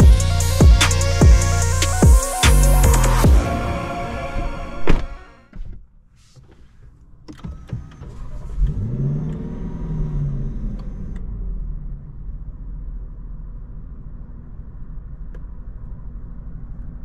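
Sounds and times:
car engine starting and revving: 7.4s - 16.6s.

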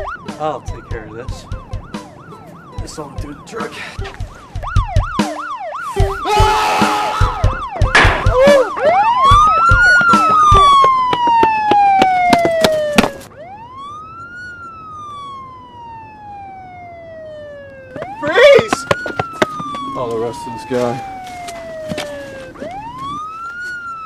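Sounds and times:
police siren: 0.0s - 24.0s
sharp bangs: 6.8s - 13.2s.

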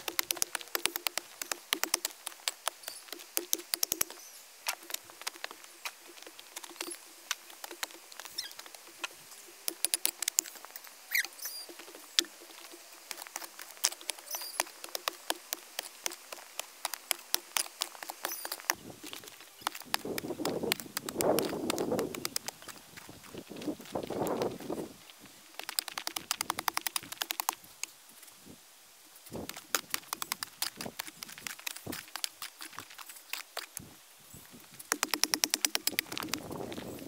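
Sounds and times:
rain drops pattering: 0.0s - 11.0s, 11.7s - 27.9s.

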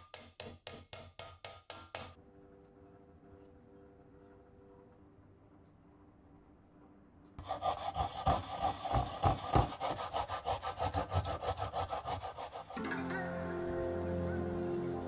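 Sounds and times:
rasping on metal grater: 7.4s - 12.8s.

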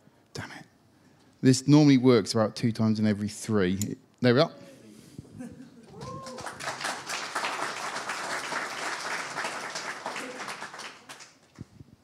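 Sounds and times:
audience applauding: 5.9s - 11.6s.

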